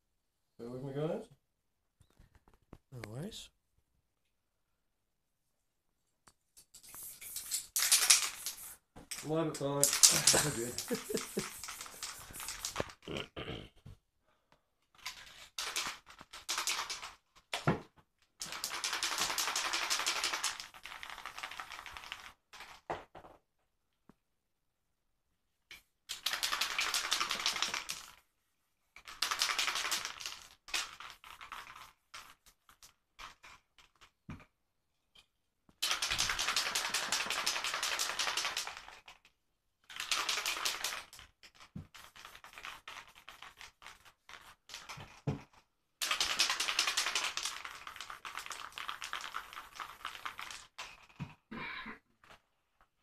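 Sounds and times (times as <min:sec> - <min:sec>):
spray paint can hissing: 0:06.8 - 0:08.8, 0:09.8 - 0:13.0, 0:46.0 - 0:50.7
can clicks and rattles: 0:06.8 - 0:13.0, 0:15.0 - 0:17.7, 0:18.4 - 0:22.9, 0:25.7 - 0:28.2, 0:29.0 - 0:34.1, 0:35.8 - 0:39.3, 0:39.9 - 0:51.2.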